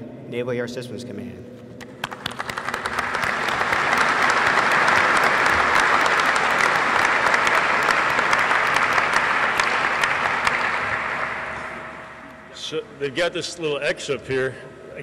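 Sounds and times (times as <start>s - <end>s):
audience applauding: 1.8s - 12.3s.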